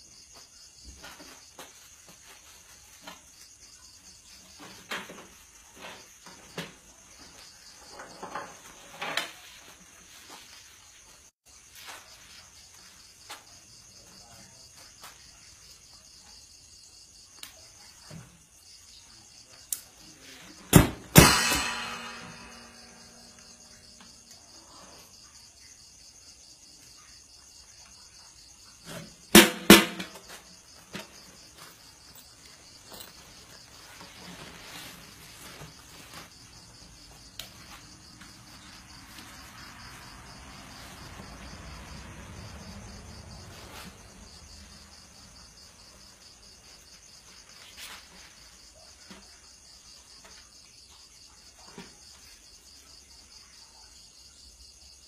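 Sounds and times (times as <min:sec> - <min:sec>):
crickets chirring: 0:00.0 - 0:55.0
cymbal and drum strikes: 0:20.8 - 0:23.4.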